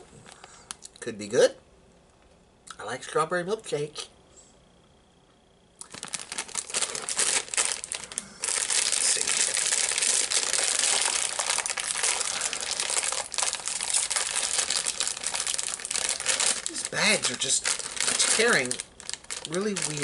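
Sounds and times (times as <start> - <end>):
plastic bag crackling and tearing: 5.8 - 20.0.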